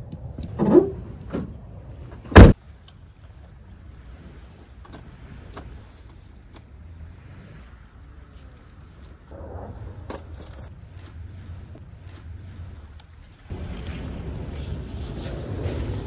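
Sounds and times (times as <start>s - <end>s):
tailgate slamming shut: 2.3s - 2.6s.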